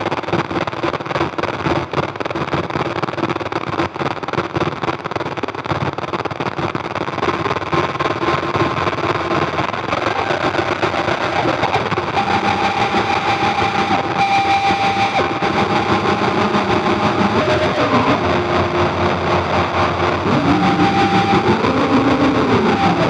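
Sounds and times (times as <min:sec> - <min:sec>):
distorted noise drone: 0:08.4 - 0:23.0
held synth tones sliding in pitch: 0:11.0 - 0:23.0.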